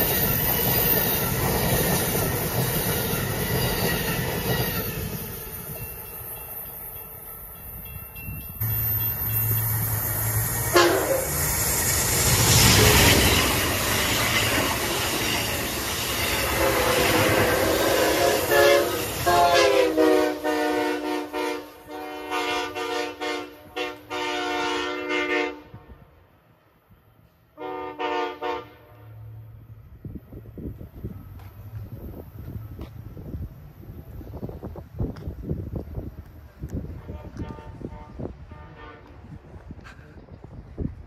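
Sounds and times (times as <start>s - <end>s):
train rushing past: 0.0s - 41.0s
train chord horn blasts: 8.6s - 11.4s, 16.4s - 26.0s, 27.6s - 29.5s, 37.0s - 39.3s.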